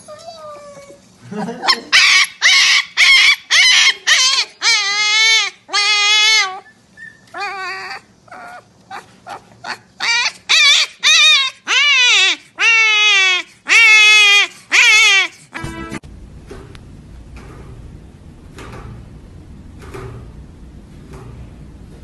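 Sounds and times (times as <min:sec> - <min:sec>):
puppy yelping and howling: 0:01.6 - 0:15.6.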